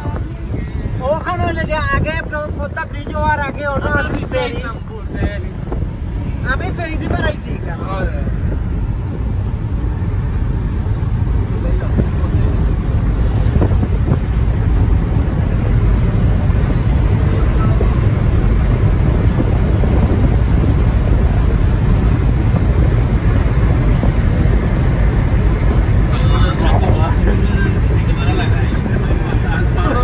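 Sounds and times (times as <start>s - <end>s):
tyres rumbling on road: 0.0s - 30.0s.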